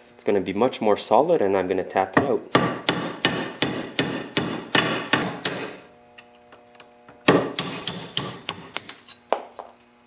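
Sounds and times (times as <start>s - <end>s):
hammer tapping metal punch: 2.2s - 5.8s, 7.2s - 9.5s.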